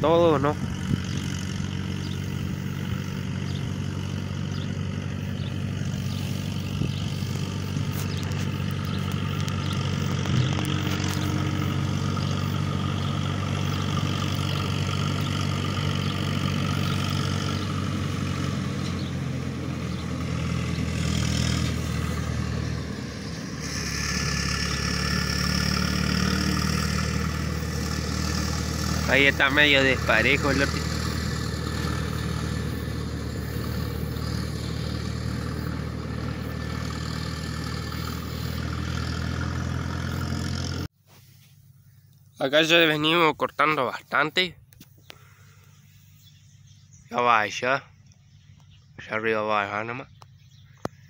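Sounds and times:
tractor diesel engine under load: 0.0s - 47.8s.

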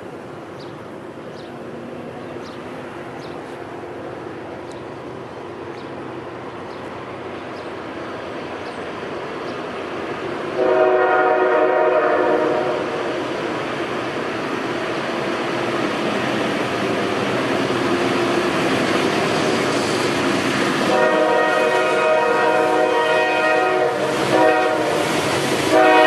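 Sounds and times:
diesel locomotive rumble: 0.0s - 26.0s
train air horn blast: 10.6s - 13.0s, 20.8s - 26.0s.

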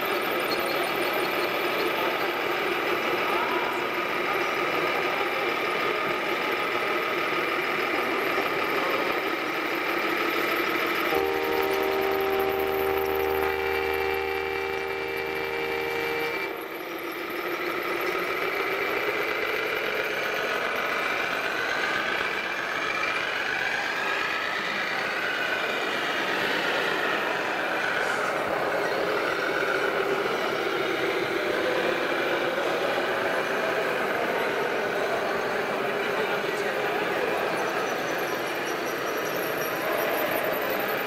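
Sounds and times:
electronic truck engine sound: 0.0s - 41.0s
horn chord: 11.1s - 16.6s.

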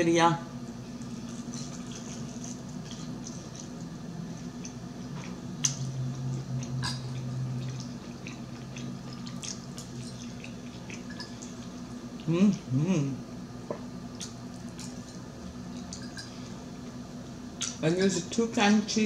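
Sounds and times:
low steady hum: 0.0s - 19.0s
chewing fried chicken: 0.8s - 12.7s, 14.1s - 17.0s.

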